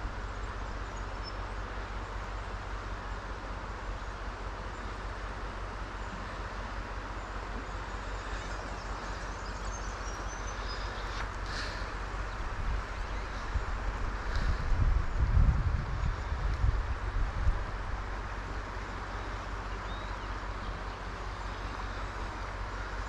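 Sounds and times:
faint bird chirps: 7.1 - 14.0, 19.0 - 23.0
wind rumble on microphone: 7.8 - 23.0.

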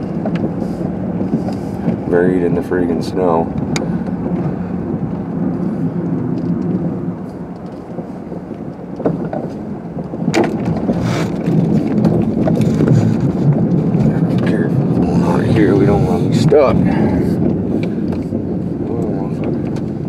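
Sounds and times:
car engine and tyre rumble: 0.0 - 20.0
sharp knocks and crunches: 8.8 - 16.6.

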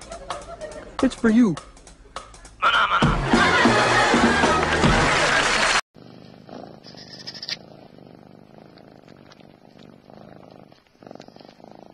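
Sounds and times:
music: 0.0 - 5.8
cat purring: 6.0 - 11.9.

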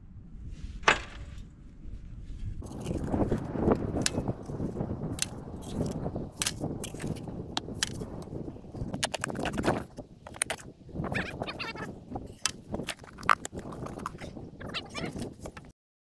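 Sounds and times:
shovel scraping dirt: 2.6 - 8.2.

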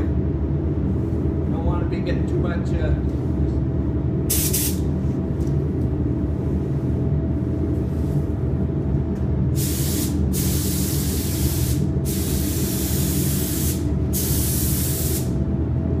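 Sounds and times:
steady low hum: 0.0 - 16.0
paint spray gun hissing: 4.3 - 4.8, 9.6 - 15.3.

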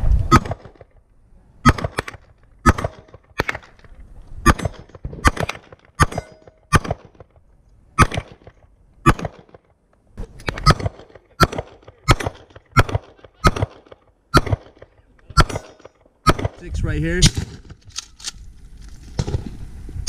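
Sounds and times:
pistol gunshots: 0.3 - 1.0, 1.6 - 3.8, 4.4 - 7.4, 8.0 - 9.7, 10.4 - 17.8.

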